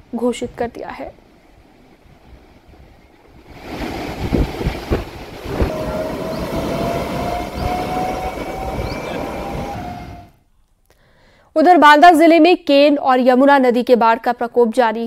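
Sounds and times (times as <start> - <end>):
train rumbling on rails: 3.5 - 10.4
long steady rising tone: 5.4 - 10.4.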